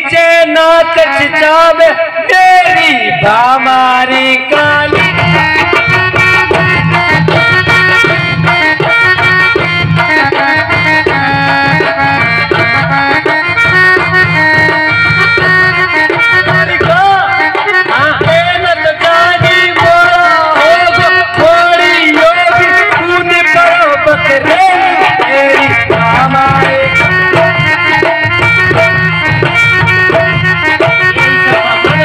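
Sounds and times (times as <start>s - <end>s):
harmonium chords: 0.0s - 32.0s.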